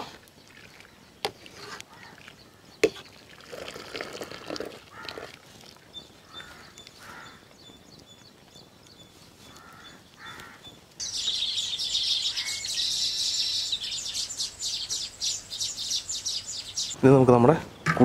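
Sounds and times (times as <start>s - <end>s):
weaver birds chirping chorus: 5.9s - 18.0s
faint bird calls: 6.0s - 7.8s, 9.4s - 17.0s.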